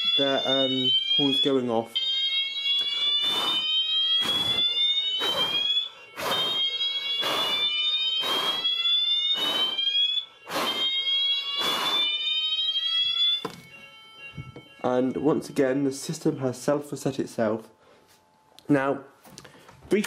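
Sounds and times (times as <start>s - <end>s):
fire alarm horn buzzing: 0.0s - 16.7s
fire alarm sweeping tone: 0.0s - 18.0s.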